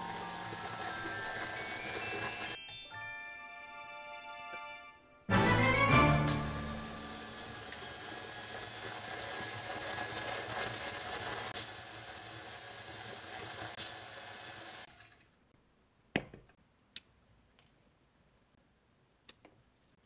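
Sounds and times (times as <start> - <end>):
stand mixer running: 0.0 - 2.6, 6.5 - 14.9.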